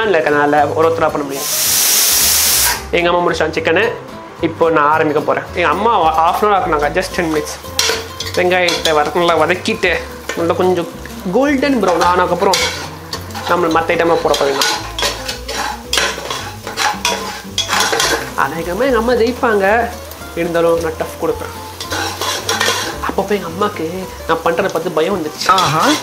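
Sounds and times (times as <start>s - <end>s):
onions sizzling: 0.0s - 4.0s, 4.9s - 26.0s
spatula scraping pot: 11.8s - 18.4s, 21.7s - 23.0s.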